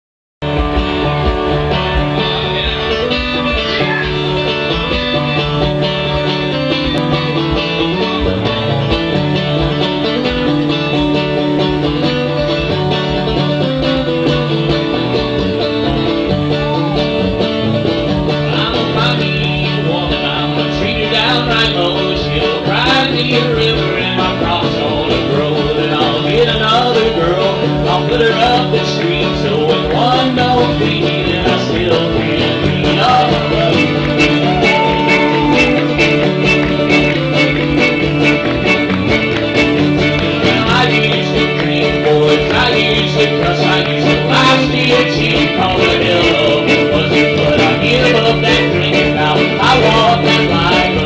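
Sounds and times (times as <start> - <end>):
acoustic guitar strumming: 0.4 - 51.0
bass line: 0.4 - 51.0
man singing: 1.8 - 4.6, 16.4 - 17.2, 18.3 - 36.3, 40.3 - 51.0
fiddle playing: 33.0 - 45.8.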